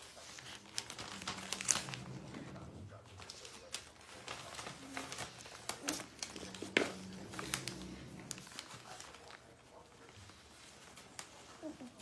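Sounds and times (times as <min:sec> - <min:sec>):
newspaper crinkling and rustling: 0:00.0 - 0:12.0.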